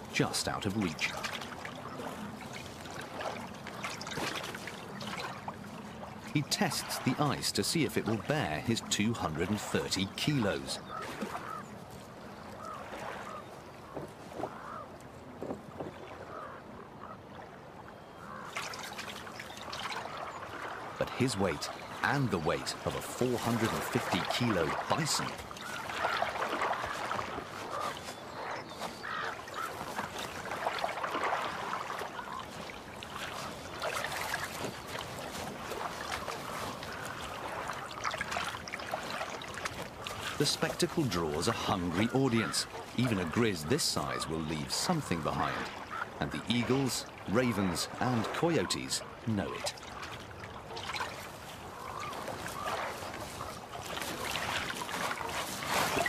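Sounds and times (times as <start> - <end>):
bear splashing through water: 18.5 - 43.6, 50.0 - 56.0.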